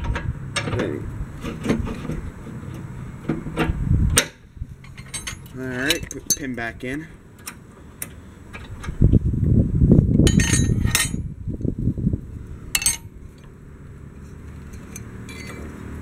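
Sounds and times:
low rumbling rustle: 0.0 - 6.3, 7.1 - 16.0
metal clinks: 4.8 - 6.5, 10.3 - 11.2, 12.8 - 13.1, 14.7 - 15.7.

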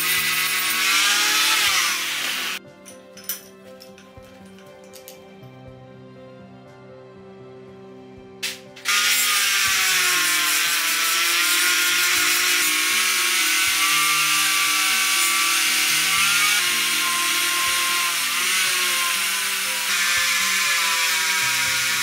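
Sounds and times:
rotary tool grinding metal: 0.0 - 2.6, 8.8 - 22.0.

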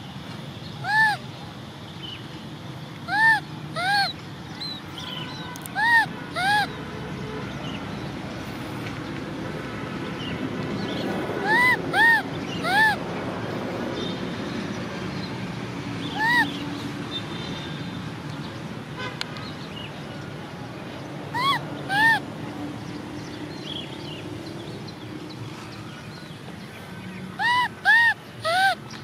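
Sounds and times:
baby monkey whimpering: 0.8 - 1.2, 3.1 - 4.1, 5.6 - 6.7, 11.4 - 13.0, 16.2 - 16.5, 21.4 - 22.2, 27.4 - 28.8.

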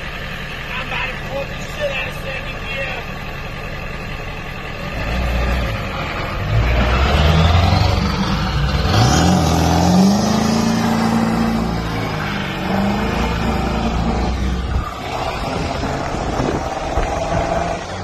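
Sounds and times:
truck engine accelerating: 0.0 - 18.0
wheels spinning on wet road: 4.6 - 18.0.

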